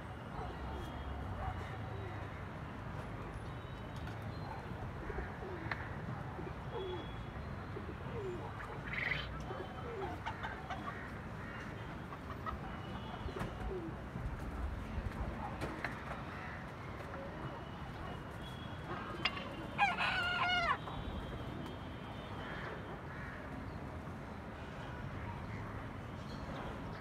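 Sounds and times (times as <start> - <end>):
pigeons cooing: 7.7 - 10.5.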